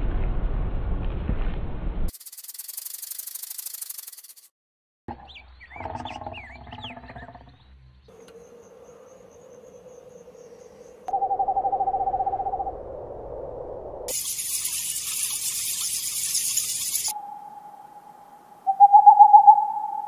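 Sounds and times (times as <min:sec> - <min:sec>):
high bird chirps: 0:05.2 - 0:12.8, 0:14.1 - 0:20.0
owl trilling call: 0:14.1 - 0:20.0.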